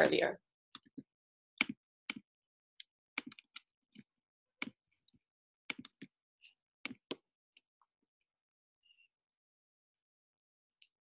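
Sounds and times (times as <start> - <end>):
computer mouse clicks: 2.8 - 3.7, 5.7 - 6.1
keyboard clicks: 3.2 - 3.7, 5.7 - 6.1.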